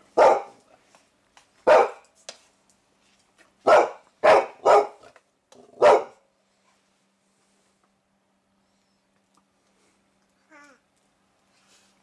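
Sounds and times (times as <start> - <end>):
dog barking: 0.1 - 0.6, 1.6 - 2.0, 3.6 - 5.1, 5.7 - 6.2.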